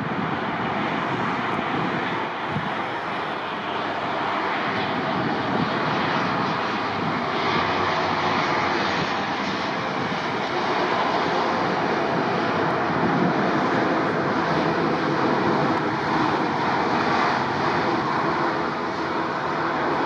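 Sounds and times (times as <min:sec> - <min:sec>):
jet engines roaring: 0:00.0 - 0:20.0.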